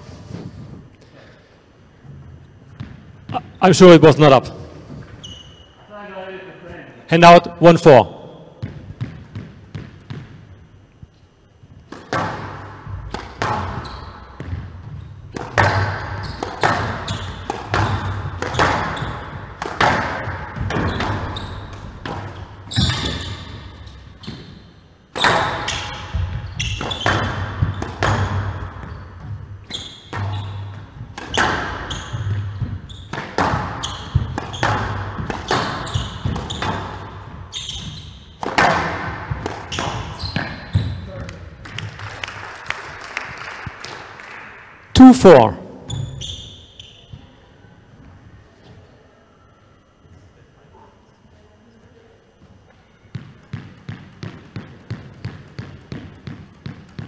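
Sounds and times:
squash ball hitting rackets and walls: 2.7 - 3.6, 8.6 - 10.8, 11.7 - 42.0, 53.1 - 57.0.

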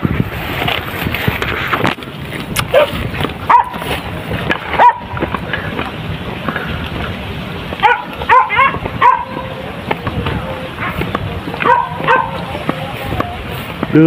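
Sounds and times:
dogs yelping: 2.7 - 3.9, 4.7 - 5.3, 7.8 - 9.6, 11.6 - 12.5.

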